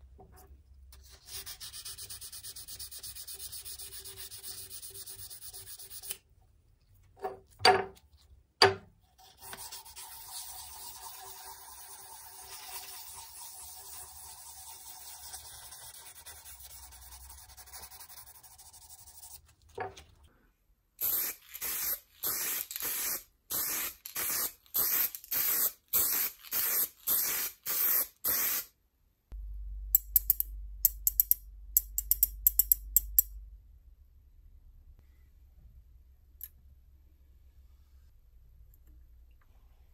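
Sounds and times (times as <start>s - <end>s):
spray paint can bursts: 21.0s - 28.7s
sharp metallic clicks: 29.9s - 33.3s.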